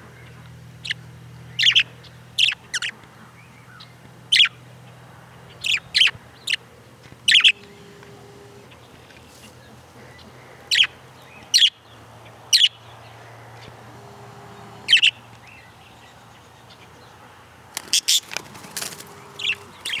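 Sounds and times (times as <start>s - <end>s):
budgerigars chirping: 0.8s - 4.6s, 5.5s - 6.6s, 7.2s - 8.9s, 9.5s - 15.7s, 17.8s - 20.0s.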